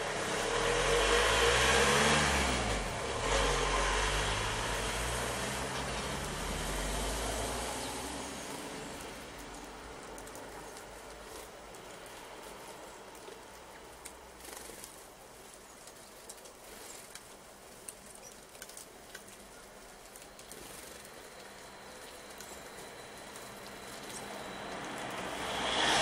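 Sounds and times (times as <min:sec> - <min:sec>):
approaching vehicle: 0:00.0 - 0:13.7, 0:20.4 - 0:26.0
light patter: 0:08.4 - 0:25.2.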